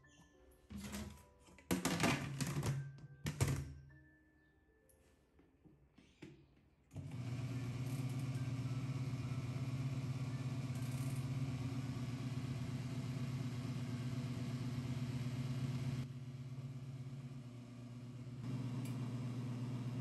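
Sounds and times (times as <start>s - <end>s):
washing machine motor humming: 6.9s - 20.0s.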